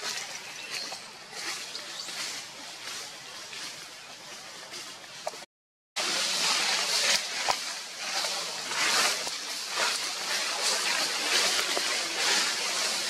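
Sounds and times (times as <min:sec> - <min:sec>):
outdoor hiss: 0:06.0 - 0:13.0.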